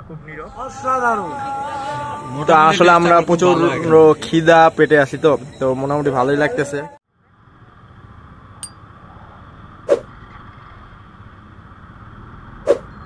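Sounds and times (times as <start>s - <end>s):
motorcycle road and traffic noise: 3.0s - 13.0s.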